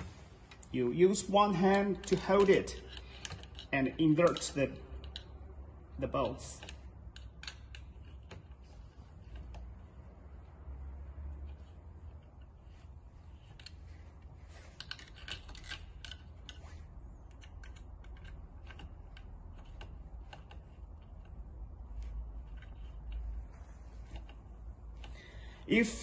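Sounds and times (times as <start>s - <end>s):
small metal clicks and taps: 1.6s - 5.6s, 6.2s - 9.8s, 14.7s - 25.4s.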